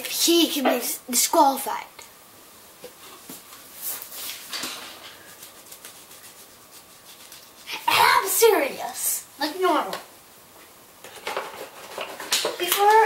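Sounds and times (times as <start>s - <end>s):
steady low hiss: 0.0s - 13.0s
pencil scratching: 5.3s - 7.7s.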